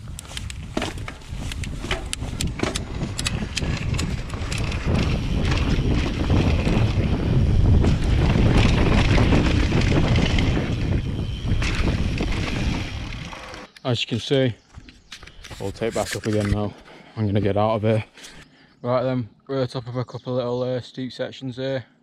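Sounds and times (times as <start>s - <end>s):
wind buffeting microphone: 0.0s - 13.6s
bike clicks and rattles: 0.0s - 13.8s, 14.7s - 16.7s.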